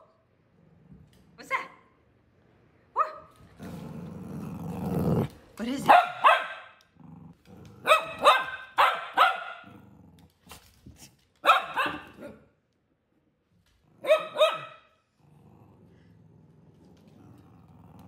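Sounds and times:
dog barking: 0:03.0 - 0:03.3, 0:05.9 - 0:06.8, 0:07.8 - 0:09.7, 0:11.4 - 0:12.5, 0:14.0 - 0:15.0.

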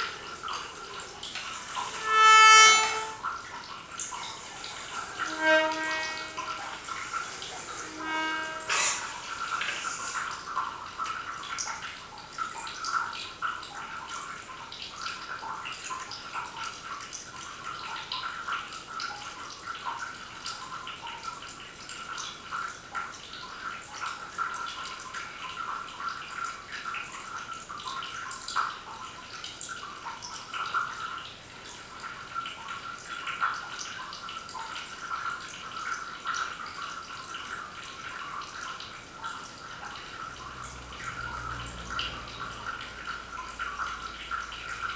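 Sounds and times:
water dripping and trickling: 0:00.0 - 0:44.9
reed instruments holding high tone: 0:01.6 - 0:03.2, 0:04.8 - 0:07.0, 0:07.6 - 0:09.2.

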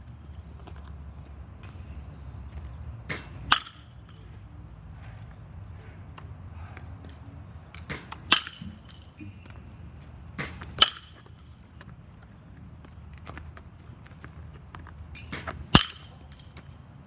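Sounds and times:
metal bat hitting baseball: 0:03.1 - 0:04.3, 0:07.8 - 0:09.1, 0:10.4 - 0:11.4, 0:15.2 - 0:16.6.

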